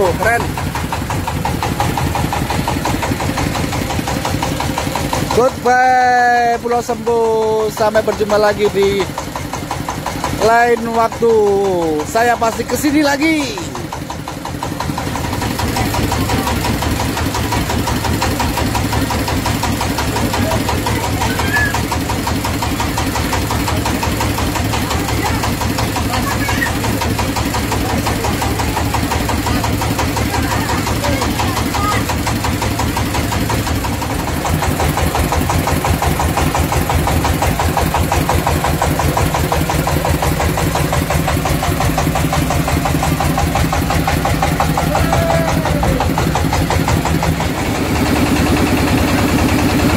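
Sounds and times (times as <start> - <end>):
boat engine chugging: 0.0 - 49.9
murmur of voices: 19.2 - 36.4, 43.6 - 49.2.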